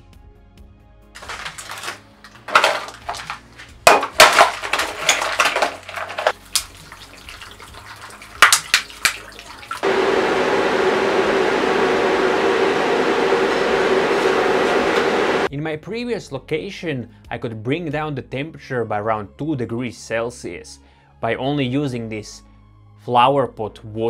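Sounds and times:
ice blocks knocking into plastic trough: 0:01.2 - 0:06.7
plastic crinkling: 0:01.2 - 0:06.8
water splashing over ice: 0:01.2 - 0:09.8
computer fans running: 0:09.8 - 0:15.5.

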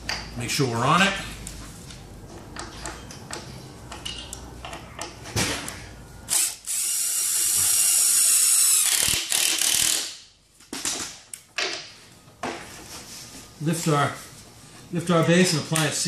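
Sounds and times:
cordless drill driving screw: 0:06.3 - 0:10.1
drill clicks: 0:06.3 - 0:10.1.

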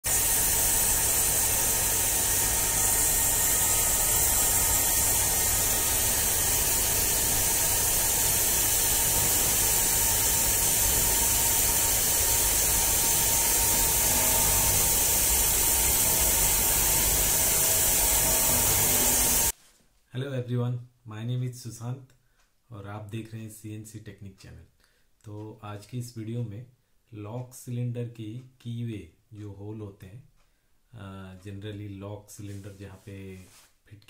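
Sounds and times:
milling machine hissing: 0:00.0 - 0:19.5.

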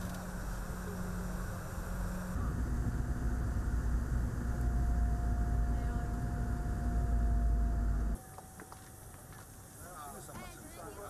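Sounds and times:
jet engine cabin rumble: 0:00.0 - 0:08.2
steady whine: 0:00.0 - 0:08.8.

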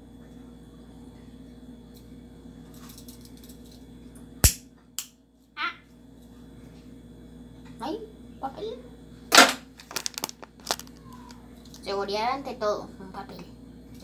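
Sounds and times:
steady low hum: 0:00.0 - 0:14.0
lighter clicks: 0:04.4 - 0:05.1.

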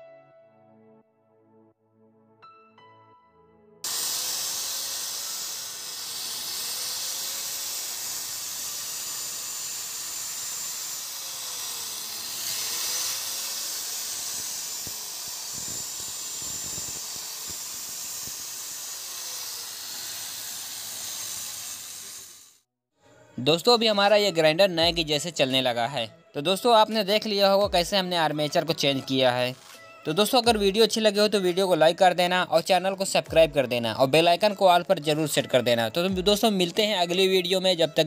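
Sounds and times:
angle grinder whining: 0:03.8 - 0:22.6.

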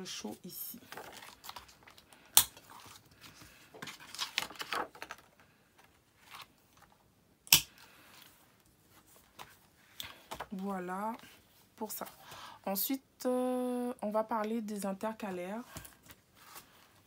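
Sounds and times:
plastic pages rustling: 0:00.2 - 0:07.1.

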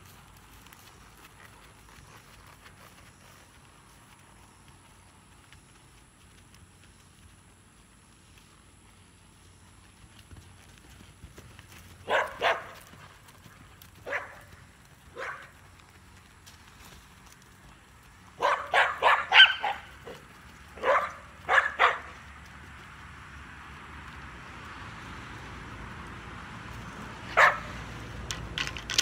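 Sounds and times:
dog barking: 0:12.0 - 0:12.8, 0:14.0 - 0:14.5, 0:15.1 - 0:15.5, 0:18.4 - 0:20.2, 0:20.8 - 0:22.2, 0:27.3 - 0:27.8.

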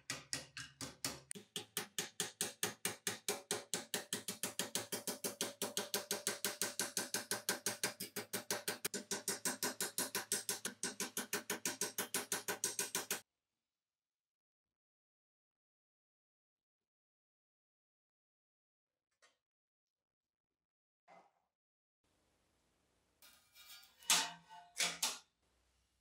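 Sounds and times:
hammer tapping on metal blade: 0:00.0 - 0:13.2.

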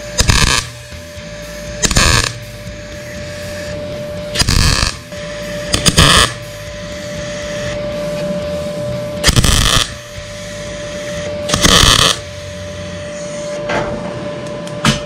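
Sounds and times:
welding arc crackle: 0:00.0 - 0:01.0, 0:01.8 - 0:02.5, 0:04.3 - 0:06.6, 0:09.2 - 0:13.1
welder hum: 0:00.0 - 0:15.0.

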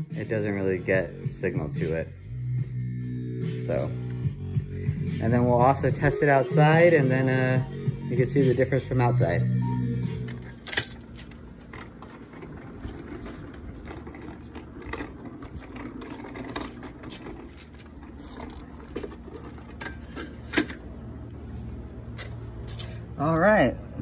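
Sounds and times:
wheels rattling over concrete: 0:10.0 - 0:24.0.

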